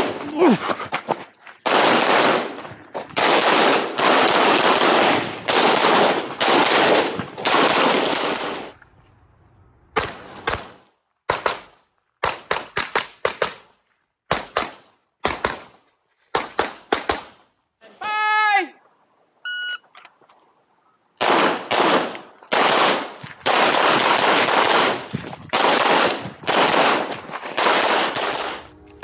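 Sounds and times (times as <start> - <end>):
gunshot echo: 21.2 - 28.7.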